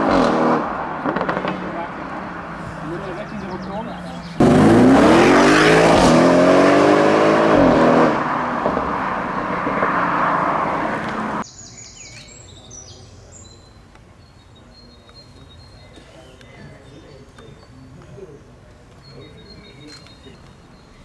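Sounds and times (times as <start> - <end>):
car engine accelerating hard: 0.0 - 3.1, 4.3 - 11.4
birds chirping faintly: 1.4 - 4.5, 11.4 - 21.0.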